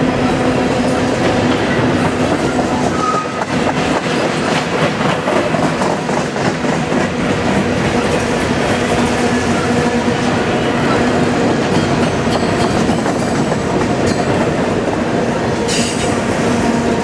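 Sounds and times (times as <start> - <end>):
train wheels rumbling on rails: 0.0 - 17.0
brief wheel squeal: 2.9 - 3.4.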